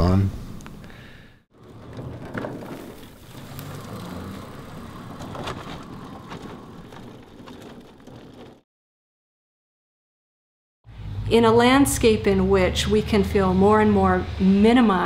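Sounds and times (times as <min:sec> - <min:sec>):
tyres crunching on gravel: 0:01.5 - 0:08.6.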